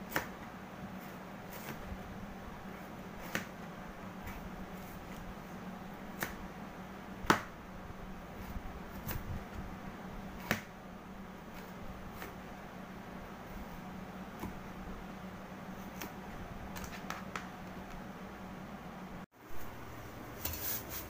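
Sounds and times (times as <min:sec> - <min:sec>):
knife chopping on plastic board: 0:00.0 - 0:00.4, 0:03.2 - 0:05.3, 0:06.1 - 0:06.5, 0:07.2 - 0:07.6, 0:10.3 - 0:10.8, 0:11.6 - 0:12.4, 0:14.3 - 0:14.6, 0:15.8 - 0:17.8
faint steady hum: 0:00.0 - 0:21.0.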